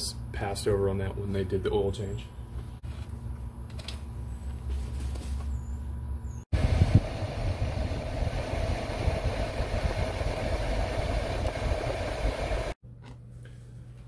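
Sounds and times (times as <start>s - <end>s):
engine running heard from cab: 6.6s - 12.8s.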